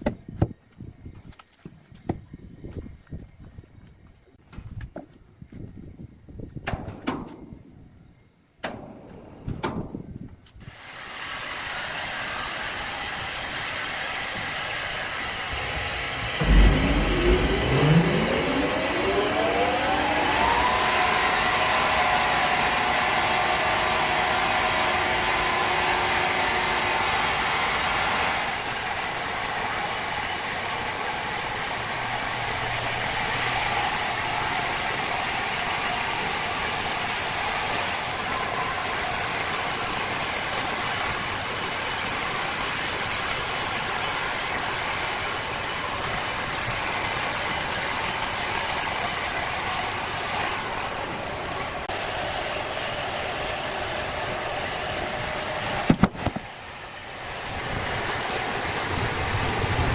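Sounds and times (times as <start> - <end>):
noisy machine din: 10.7 - 59.9
motor-driven machine running: 11.5 - 56.7.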